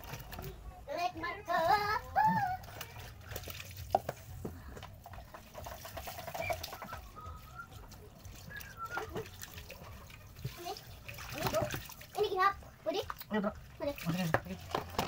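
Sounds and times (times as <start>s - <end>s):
hands splashing fish in water: 2.6s - 12.2s
tap water pouring into basin: 2.6s - 15.0s.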